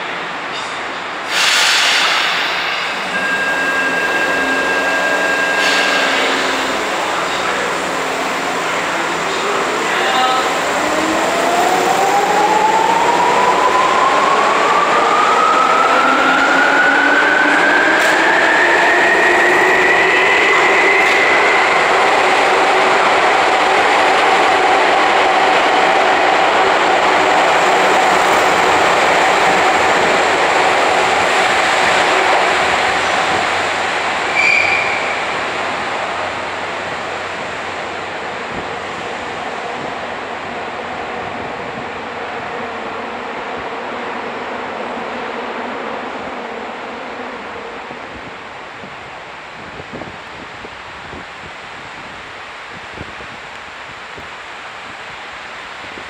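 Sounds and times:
rumble of passing train cars: 0.0s - 56.0s
high squeal: 1.3s - 7.6s, 34.3s - 35.3s.

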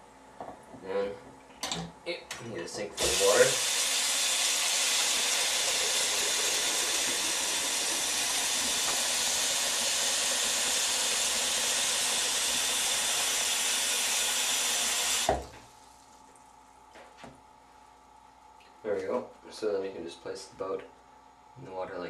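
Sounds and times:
tap water splashing into sink: 4.9s - 11.5s.

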